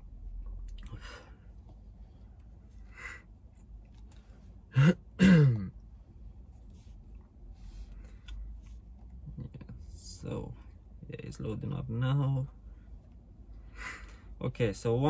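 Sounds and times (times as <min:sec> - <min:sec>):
man clearing his throat: 0:04.7 - 0:05.7.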